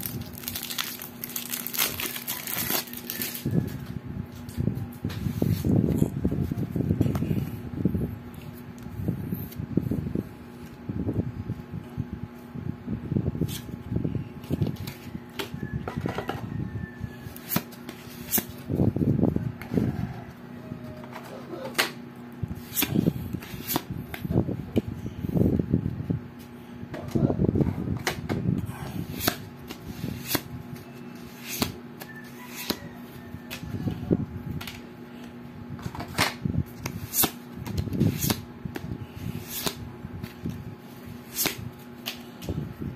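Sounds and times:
playing cards rustling: 0:00.0 - 0:03.5, 0:17.3 - 0:18.7, 0:22.6 - 0:24.2, 0:29.0 - 0:32.8, 0:36.7 - 0:42.5
playing cards snapping: 0:36.8 - 0:37.4, 0:39.4 - 0:39.8, 0:41.3 - 0:42.2.

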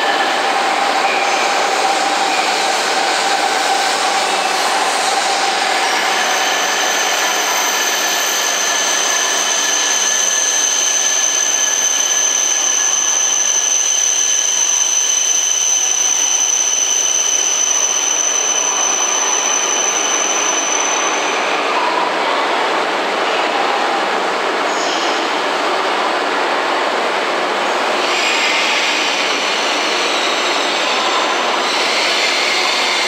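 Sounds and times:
high steady whine: 0:00.0 - 0:22.6
train running gear rushing: 0:00.0 - 0:33.0.

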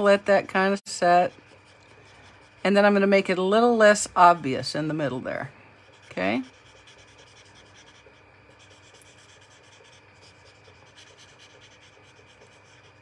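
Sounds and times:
marker scrubbing on cardstock: 0:00.6 - 0:03.1, 0:05.8 - 0:13.0.

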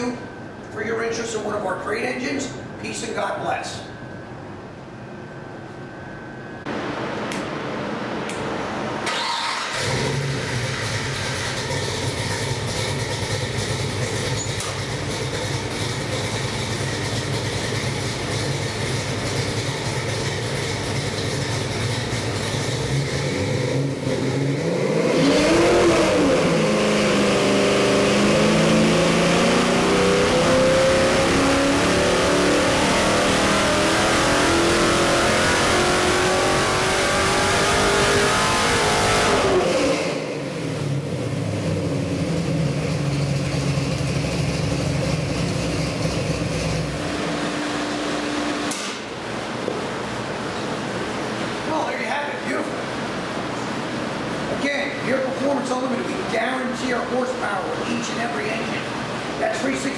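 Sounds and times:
engine idling and revving: 0:06.7 - 0:51.7.

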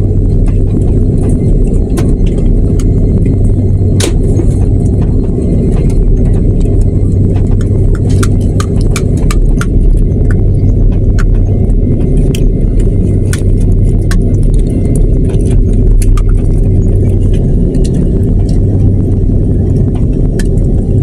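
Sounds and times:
jet engine cabin rumble: 0:00.0 - 0:21.0.

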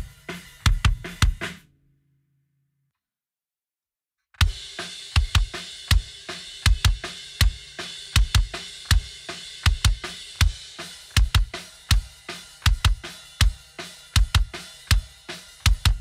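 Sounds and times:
faint cymbal and snare: 0:00.0 - 0:01.6, 0:04.4 - 0:16.0
kick drum thumps: 0:00.0 - 0:01.6, 0:05.2 - 0:10.6, 0:11.2 - 0:13.6, 0:14.2 - 0:15.0, 0:15.6 - 0:16.0.

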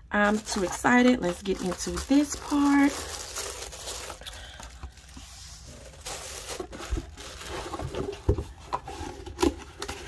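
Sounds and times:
cardboard box rustling and knocking: 0:06.4 - 0:10.0.

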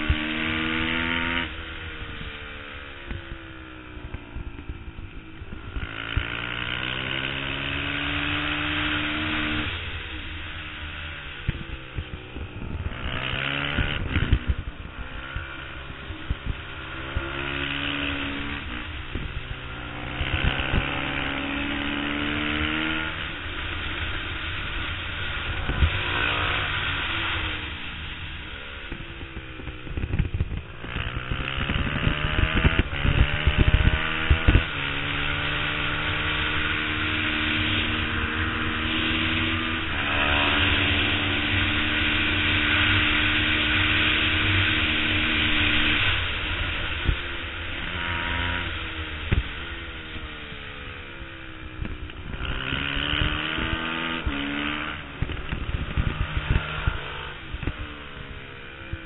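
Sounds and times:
race motorcycle engine revving: 0:00.0 - 0:59.0
wind buffeting the camera: 0:11.4 - 0:23.3, 0:24.1 - 0:59.0.

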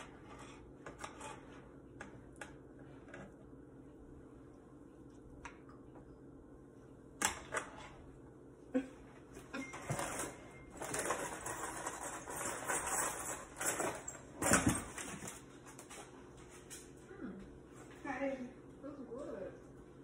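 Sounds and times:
spatula scraping a skillet: 0:00.0 - 0:01.8.

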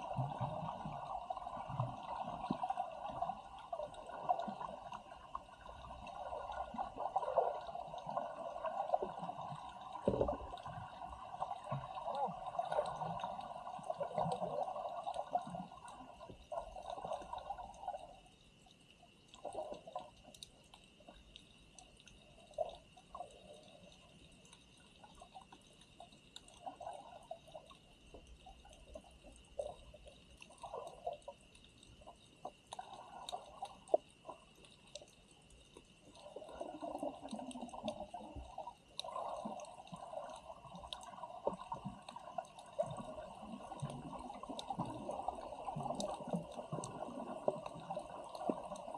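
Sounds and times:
water gurgling and sloshing: 0:00.0 - 0:48.9
faint clicks: 0:27.5 - 0:48.9.

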